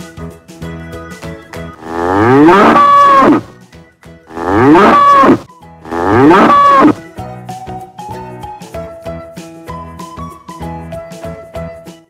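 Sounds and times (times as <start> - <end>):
bull bellowing: 1.7 - 3.5, 4.3 - 7.0.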